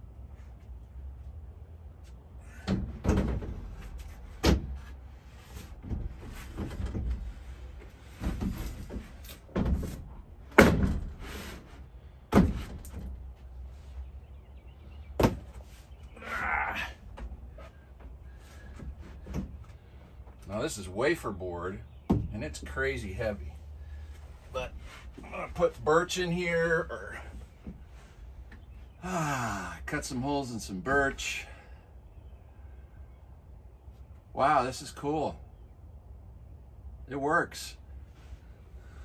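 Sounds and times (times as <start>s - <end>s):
board thudding against metal bed rails: 8.2s - 11.5s, 12.3s - 13.2s
board scraping: 11.0s - 12.9s.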